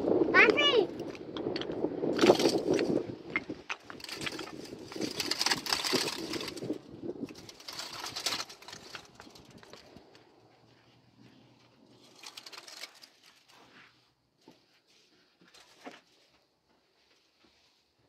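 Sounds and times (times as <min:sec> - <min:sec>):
twigs rustling: 0:02.2 - 0:14.0.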